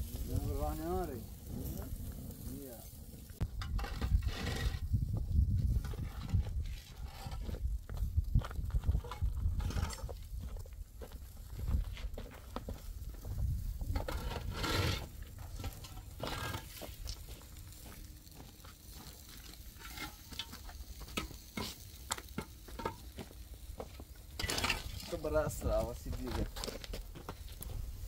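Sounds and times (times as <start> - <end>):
concrete blocks knocking and scraping: 3.4 - 10.2, 19.6 - 27.7
footsteps on stony ground: 4.2 - 28.0.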